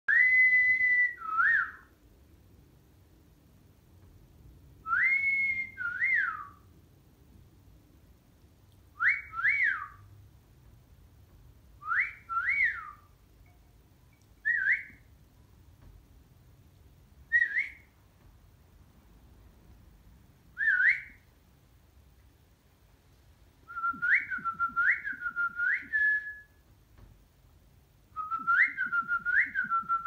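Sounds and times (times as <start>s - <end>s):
cockatiel whistling: 9.0s - 10.1s, 11.8s - 13.1s, 14.4s - 15.1s, 17.3s - 17.9s, 20.6s - 21.2s, 23.7s - 26.6s, 28.2s - 30.0s.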